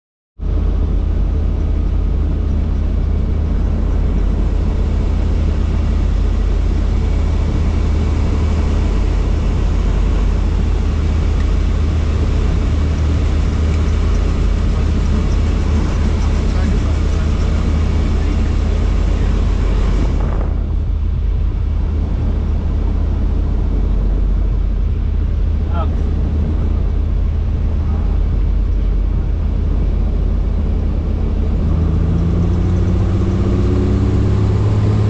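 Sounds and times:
helicopter rotor drone: 0.4s - 35.0s.

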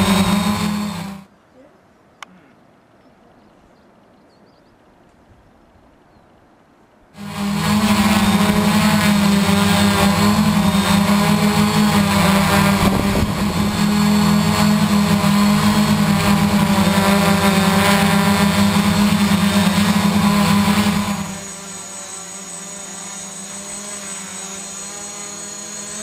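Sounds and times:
quadcopter motors buzzing: 0.0s - 1.3s, 7.2s - 26.0s.

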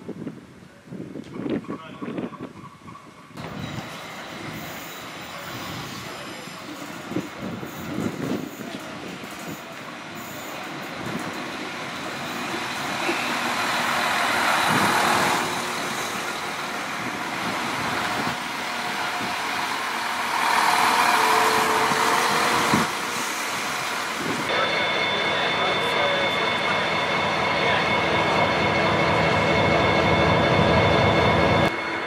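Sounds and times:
diesel railcar engines running: 0.9s - 32.0s.

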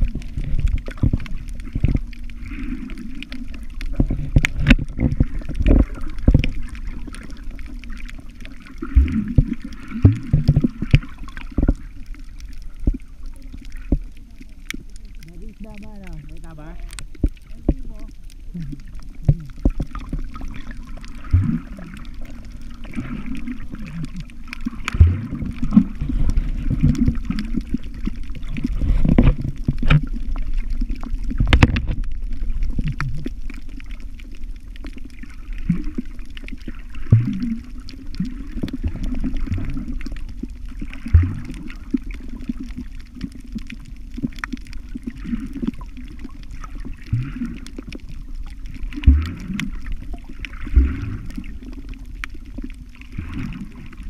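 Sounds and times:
muffled underwater water movement: 0.0s - 54.0s
water gurgling: 0.0s - 54.0s.

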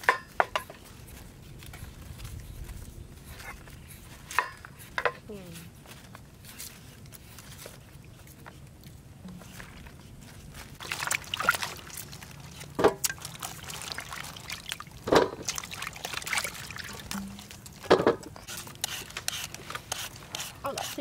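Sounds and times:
water pouring and splashing: 9.2s - 21.0s.

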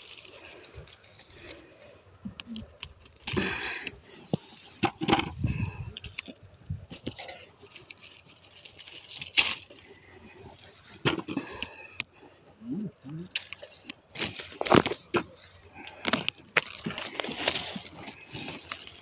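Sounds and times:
rustling through long grass: 0.0s - 19.0s.

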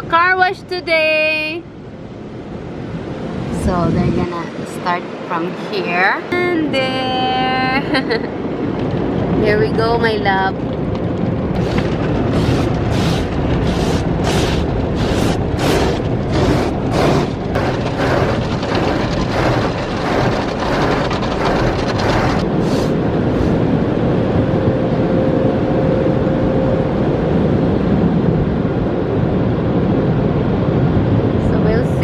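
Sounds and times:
car wash brushes slapping: 11.6s - 23.6s
water spray rushing: 11.6s - 23.6s.

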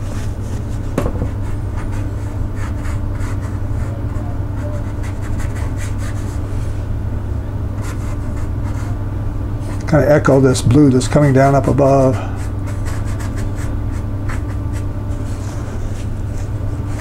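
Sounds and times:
steady low hum: 0.0s - 17.0s
brush scrubbing on paper: 11.8s - 17.0s.

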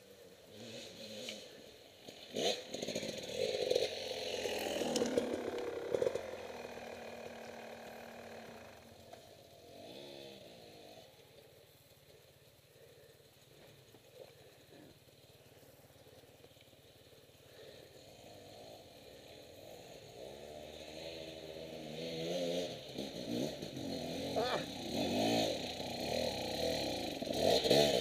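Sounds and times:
dirt bike engine revving: 0.4s - 11.5s, 17.5s - 28.0s.

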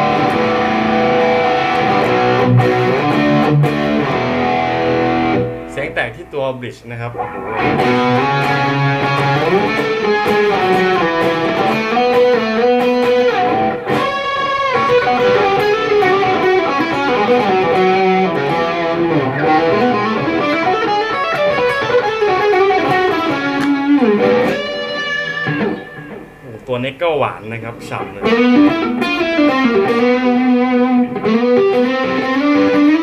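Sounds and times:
distorted electric guitar: 0.0s - 33.0s.

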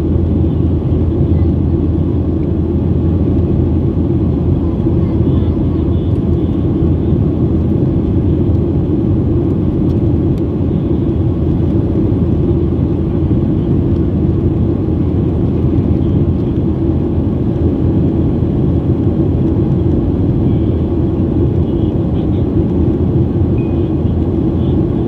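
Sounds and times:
airliner cabin engine rumble: 0.0s - 25.0s.

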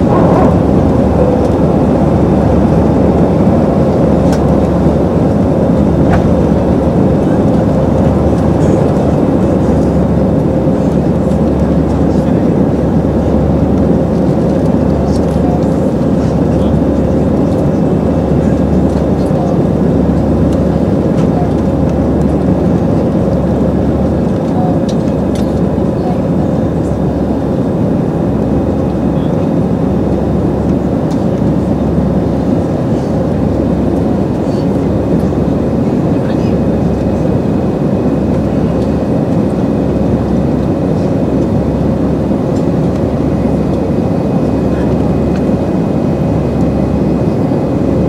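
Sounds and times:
air rushing past fuselage: 0.0s - 5.4s
jet engines at climb power: 0.0s - 48.0s
steady cabin hum: 0.0s - 48.0s.

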